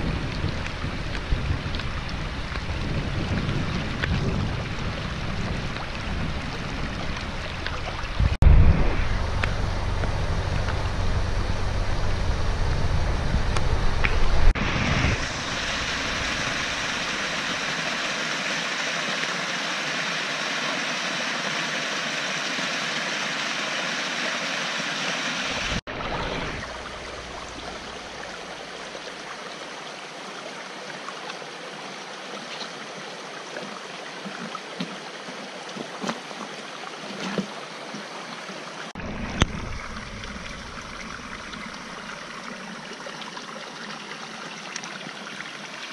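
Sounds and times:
flood water rushing over rocks: 0:00.0 - 0:45.9
vehicle rumble inside car: 0:08.2 - 0:14.6.

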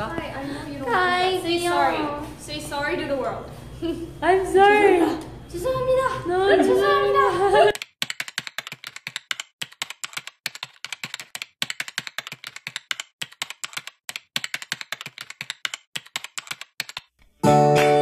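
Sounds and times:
computer keyboard typing: 0:07.7 - 0:17.2.

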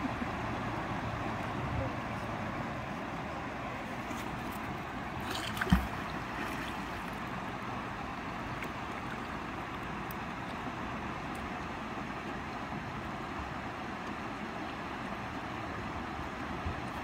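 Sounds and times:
flowing river water: 0:00.0 - 0:17.0
magnet splashing into water: 0:05.2 - 0:06.8.

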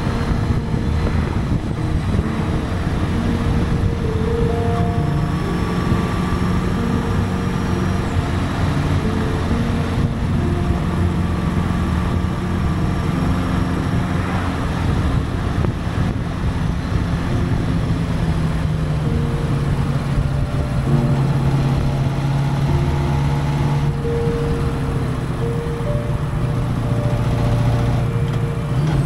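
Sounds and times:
motorcycle engine hum: 0:00.0 - 0:29.0
wind rush on microphone: 0:00.0 - 0:29.0.

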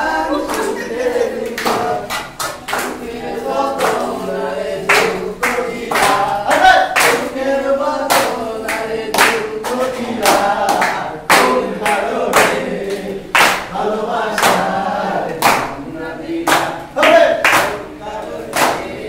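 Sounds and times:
group singing a folk song: 0:00.0 - 0:19.0
hands clapping in time: 0:00.3 - 0:04.1, 0:04.9 - 0:07.4, 0:08.1 - 0:13.7, 0:15.4 - 0:15.8, 0:16.4 - 0:17.8, 0:18.5 - 0:18.9.

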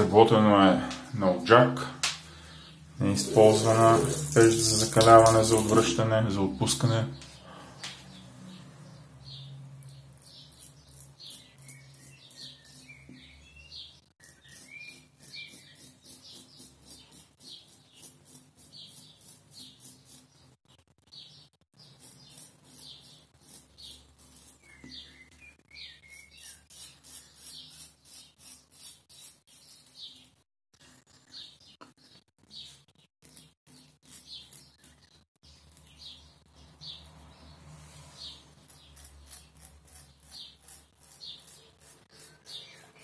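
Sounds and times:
birds chirping: 0:02.2 - 0:28.6, 0:31.1 - 0:43.0
straight razor rasping through stubble: 0:09.9 - 0:13.3, 0:14.2 - 0:20.4, 0:21.8 - 0:25.0, 0:26.0 - 0:30.4, 0:33.2 - 0:35.0, 0:38.2 - 0:43.0.

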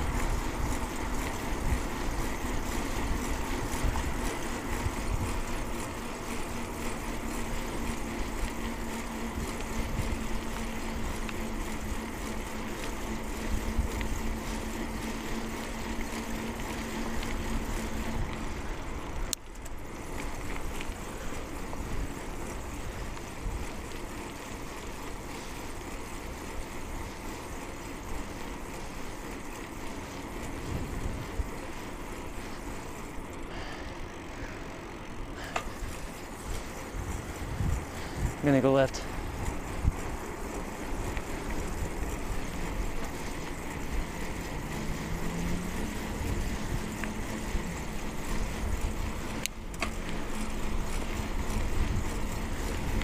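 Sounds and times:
wind buffeting microphone: 0:00.0 - 0:05.7, 0:30.4 - 0:31.7, 0:35.2 - 0:49.4, 0:50.6 - 0:53.0
bicycle tyre noise on road: 0:00.0 - 0:53.0
steady hum: 0:00.0 - 0:53.0.

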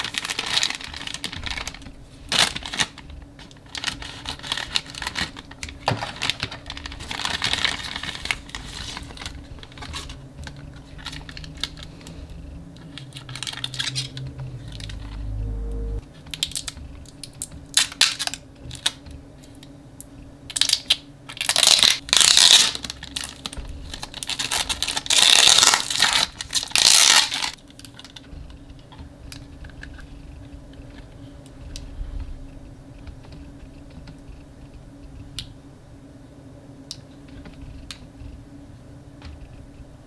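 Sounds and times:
plastic bag crinkling: 0:00.0 - 0:12.1, 0:12.9 - 0:15.0, 0:20.5 - 0:28.3.

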